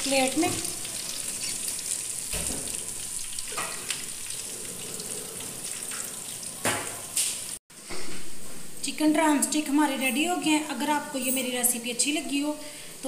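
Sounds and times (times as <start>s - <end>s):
hot oil sizzling: 0.0s - 7.6s.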